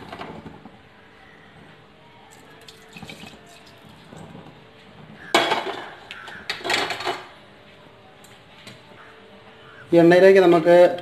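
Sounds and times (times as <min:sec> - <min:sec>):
oil trickling: 0:02.3 - 0:04.6
metal cookware clattering and scraping: 0:05.2 - 0:07.3.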